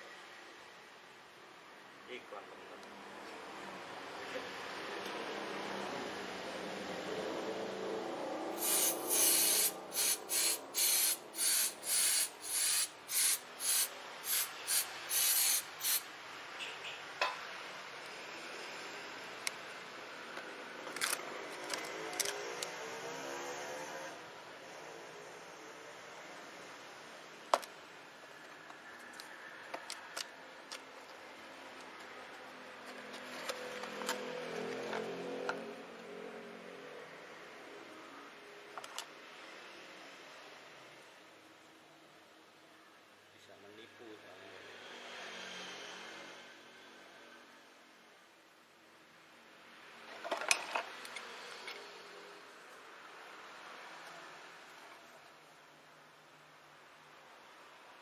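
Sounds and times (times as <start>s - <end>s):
aerosol spray hissing bursts: 8.6s - 16.1s
cardboard rustling and scraping: 32.8s - 35.1s.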